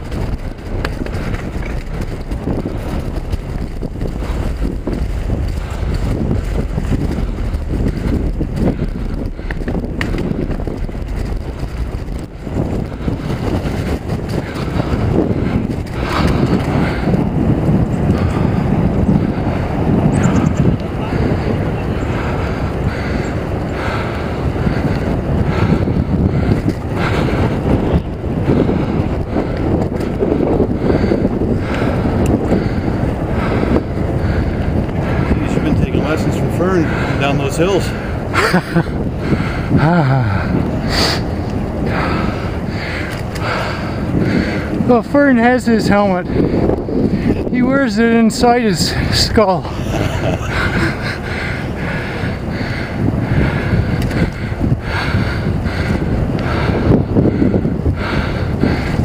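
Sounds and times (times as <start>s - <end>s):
bike tyres knocking on boardwalk: 0.0s - 17.3s
wind rushing over microphone: 0.0s - 59.0s.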